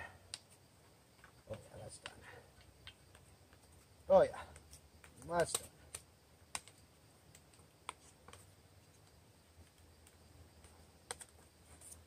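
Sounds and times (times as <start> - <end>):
faint sharp clicks: 0.3 - 0.6, 4.5 - 11.3.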